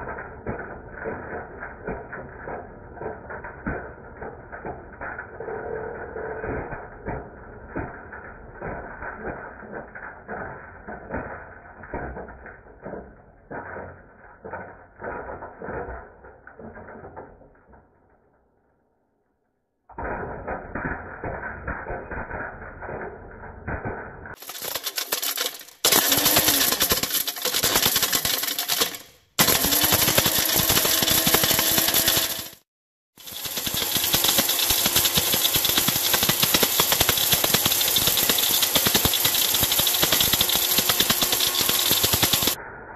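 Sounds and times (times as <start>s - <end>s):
plastic pieces clattering in a cup: 24.3s - 32.6s, 33.2s - 42.6s
blender motor rumble: 24.4s - 32.6s, 33.2s - 42.6s
card clattering in blender: 24.4s - 32.6s.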